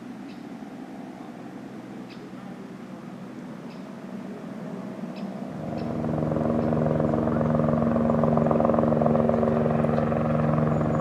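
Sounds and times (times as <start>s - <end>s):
helicopter main rotor beat: 1.0s - 11.0s
turbine engine tone: 3.9s - 11.0s.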